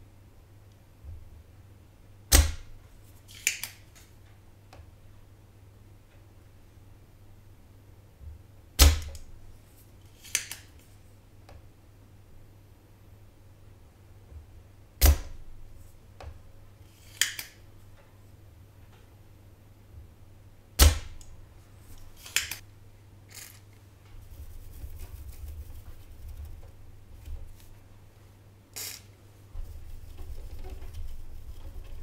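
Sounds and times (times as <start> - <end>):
desoldering tool snapping: 3.3 - 3.8, 17.1 - 17.6, 22.2 - 22.6.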